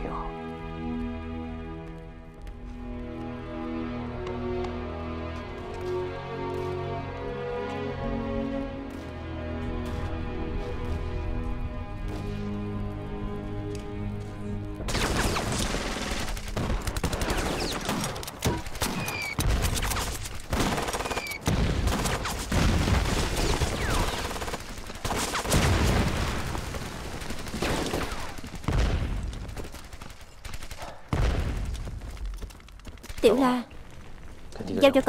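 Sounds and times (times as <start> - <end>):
soundtrack music: 0.0 - 18.4
rifle and machine-gun fire: 14.9 - 32.4
falling whistles: 18.9 - 19.4, 21.0 - 21.4.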